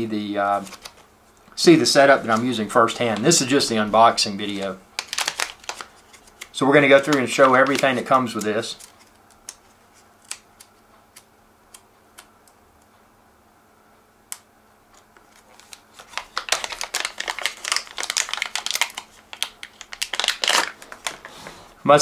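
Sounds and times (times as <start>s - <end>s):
plastic bag crinkling: 4.4s - 9.5s, 15.3s - 21.7s.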